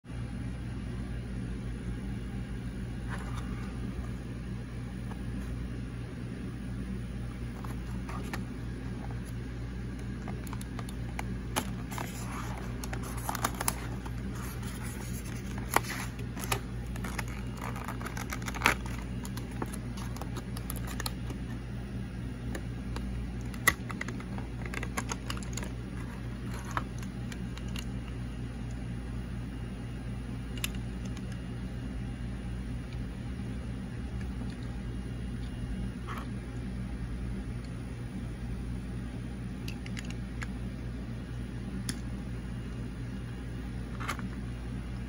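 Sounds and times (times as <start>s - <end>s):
steady low hum: 0.1s - 45.0s
plastic blister pack crinkling: 9.9s - 21.6s, 22.5s - 27.9s.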